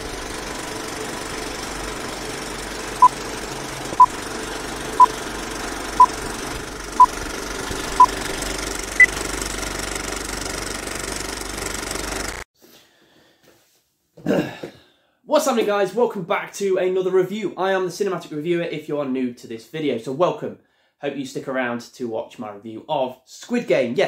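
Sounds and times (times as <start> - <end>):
film projector whirr and clatter: 0.0 - 12.5.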